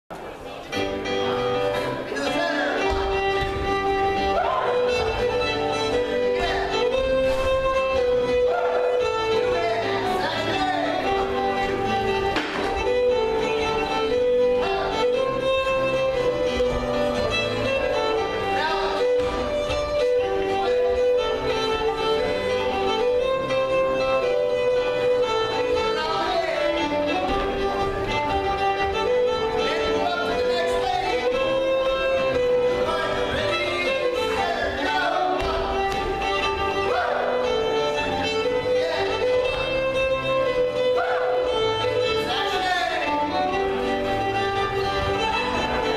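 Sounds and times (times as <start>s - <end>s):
fiddle playing long notes: 0.7s - 45.9s
band accompaniment: 10.4s - 23.8s.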